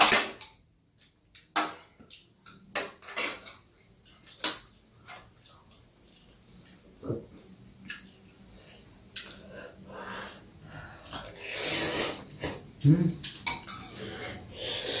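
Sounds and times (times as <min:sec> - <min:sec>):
metal cutlery clinking on bowls: 0:00.0 - 0:01.8, 0:02.5 - 0:05.3, 0:13.2 - 0:14.1.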